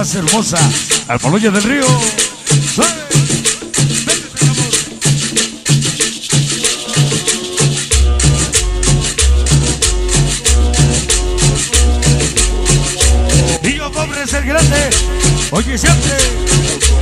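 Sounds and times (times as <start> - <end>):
latin dance music over sound system: 0.0 - 17.0
deep bass line: 7.9 - 17.0.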